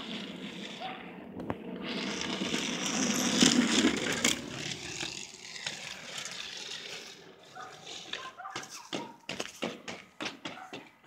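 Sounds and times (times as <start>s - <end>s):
skate wheels rolling on asphalt: 0.0s - 11.0s.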